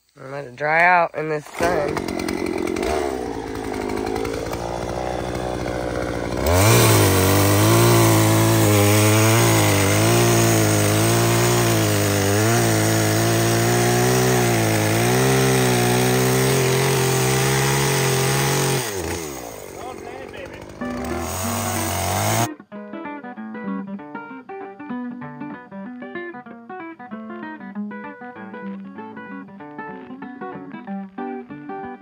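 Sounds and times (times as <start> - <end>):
chainsaw cutting log: 0.6 - 22.5.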